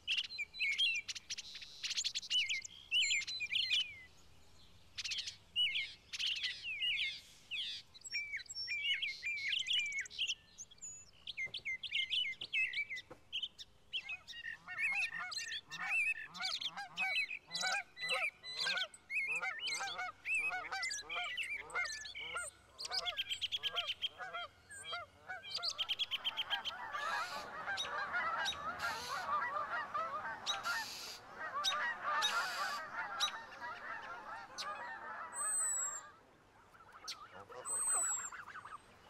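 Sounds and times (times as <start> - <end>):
birds honking calls: 14.4 - 36.1, 36.9 - 39.0.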